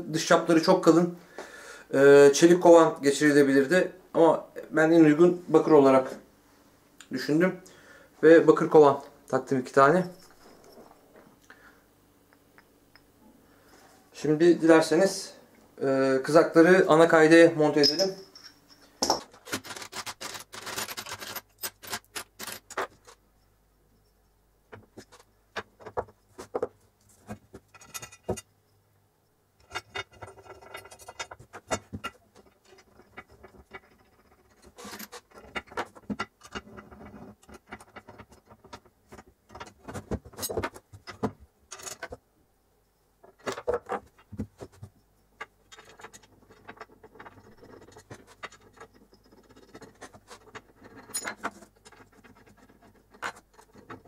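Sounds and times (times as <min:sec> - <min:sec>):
metal parts clinking and rattling: 0:17.8 - 0:23.2, 0:27.5 - 0:28.5, 0:29.6 - 0:42.2, 0:43.4 - 0:54.0.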